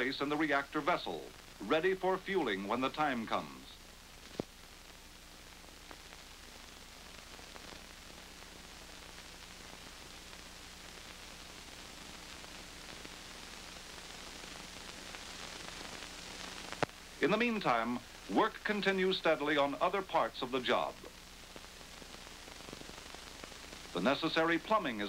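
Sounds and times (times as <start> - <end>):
film soundtrack hiss: 0.0 - 25.0.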